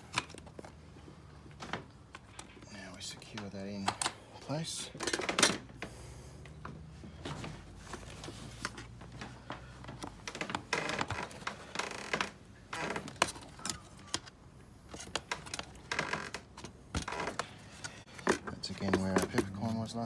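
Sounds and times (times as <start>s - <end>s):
plastic parts clicking and rattling: 4.9s - 5.7s, 12.8s - 20.0s.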